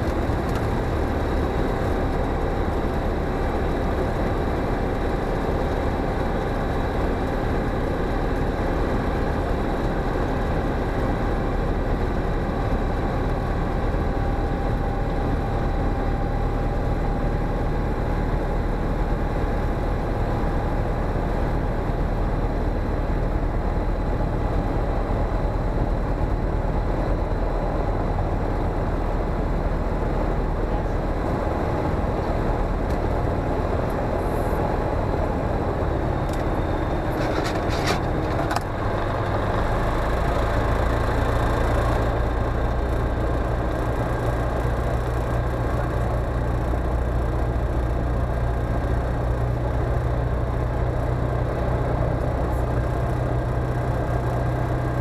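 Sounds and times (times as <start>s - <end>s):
light aircraft engine and propeller: 0.0s - 55.0s.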